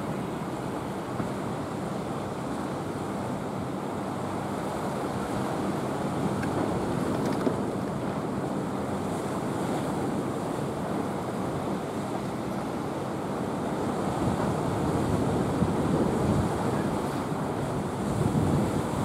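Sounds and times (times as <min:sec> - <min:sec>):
wind buffeting microphone: 0:13.7 - 0:19.0.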